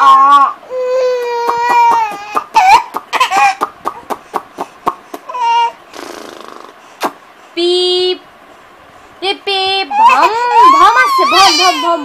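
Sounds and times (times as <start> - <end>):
baby squealing: 0.0 - 3.7, 5.3 - 5.8, 9.9 - 12.0.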